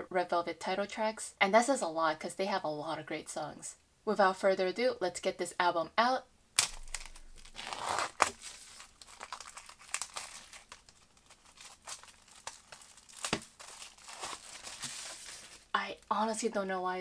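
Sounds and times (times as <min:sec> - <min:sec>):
shrink wrap crinkling and tearing: 0:06.6 - 0:15.8.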